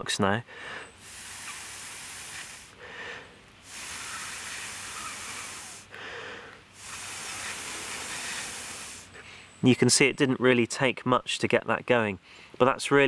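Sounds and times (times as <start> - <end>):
breath blowing on ember: 0.5 - 9.6.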